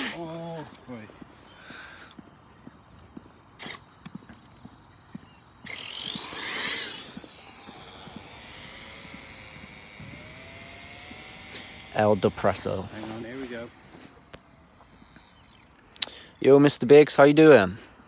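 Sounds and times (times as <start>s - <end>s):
electric motor whine: 5.6s - 15.9s.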